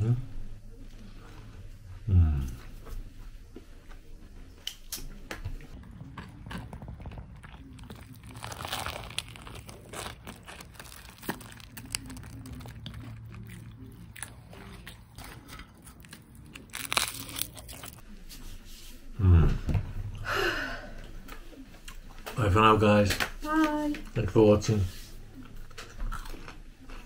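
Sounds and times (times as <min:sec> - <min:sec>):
person biting and chewing: 0:05.8 - 0:18.0, 0:25.7 - 0:27.0.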